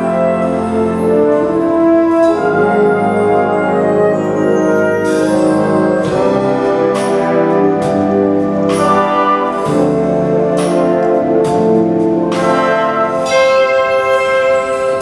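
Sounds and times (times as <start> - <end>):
wind band brass chords: 0.0 - 15.0.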